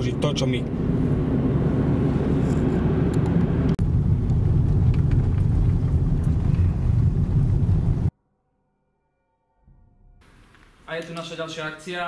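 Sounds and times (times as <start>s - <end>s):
car engine and tyre rumble: 0.0s - 8.1s.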